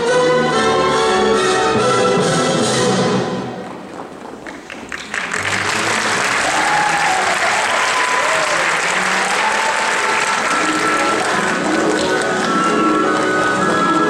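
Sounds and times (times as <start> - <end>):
audience applauding: 4.2 - 14.0.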